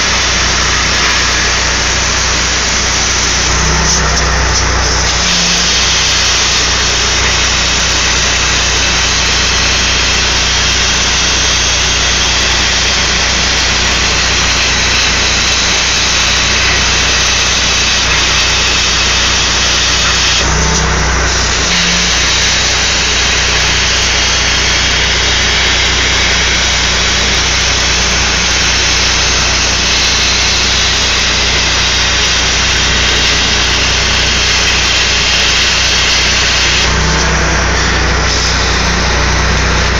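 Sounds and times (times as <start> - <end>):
plasma torch hissing: 0.0 - 39.9.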